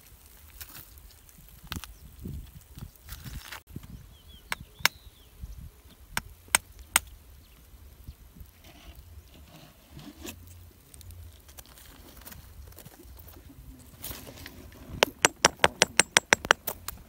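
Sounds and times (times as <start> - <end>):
light rustling on stony ground: 0.0 - 4.8, 5.8 - 17.0
stones knocking together: 11.4 - 17.0.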